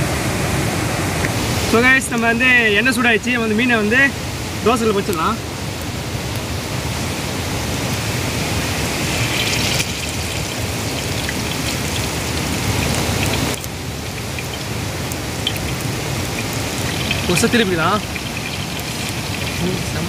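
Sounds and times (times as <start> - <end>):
water flowing: 0.0 - 20.0
oil sizzling on griddle: 1.2 - 20.0.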